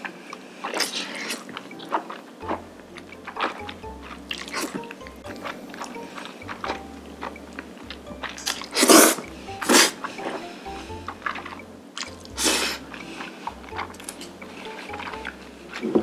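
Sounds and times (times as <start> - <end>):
background music: 0.0 - 16.0
wet chewing clicks: 0.6 - 10.3, 10.9 - 16.0.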